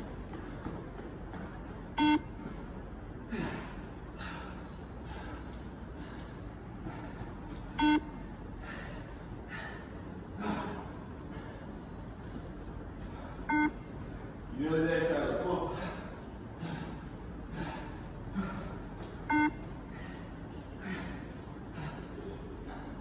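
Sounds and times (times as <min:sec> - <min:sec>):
faint running footfalls: 0:00.0 - 0:23.0
shuttle run beeps: 0:00.7 - 0:03.3, 0:07.5 - 0:08.4, 0:11.5 - 0:14.4, 0:19.1 - 0:20.6.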